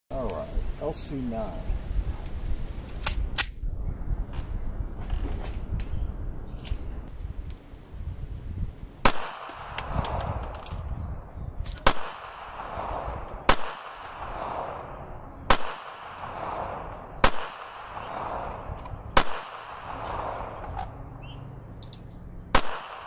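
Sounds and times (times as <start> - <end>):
pistol shots with echo: 9.0 - 10.5, 11.8 - 20.7, 22.5 - 23.0.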